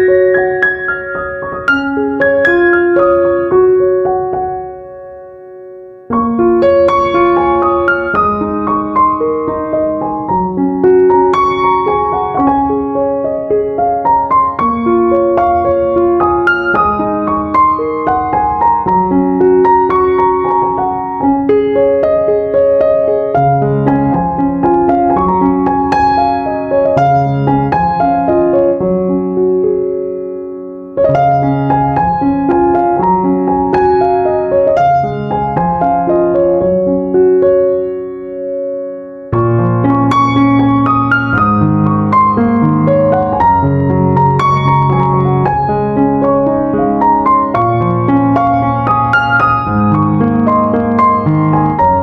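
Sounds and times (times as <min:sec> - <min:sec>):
piano music: 0:00.0 - 0:52.0.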